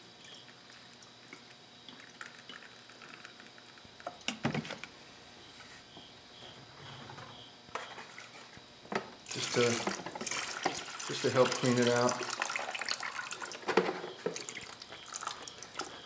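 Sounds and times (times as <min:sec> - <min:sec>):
small drips and clicks: 0:00.2 - 0:04.4, 0:14.2 - 0:16.0
water pouring into plastic reservoir: 0:09.3 - 0:15.9
water sloshing in container: 0:09.3 - 0:16.0.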